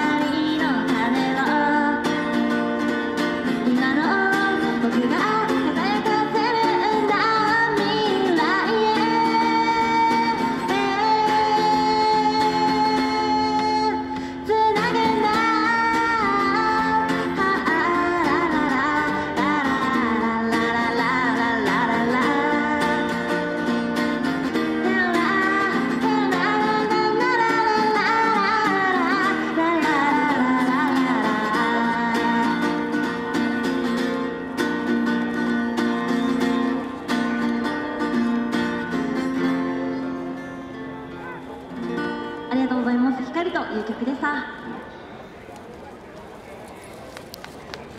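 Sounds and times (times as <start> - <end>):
woman singing: 0.0 - 2.6, 3.4 - 33.3
acoustic guitar strumming: 0.0 - 42.9.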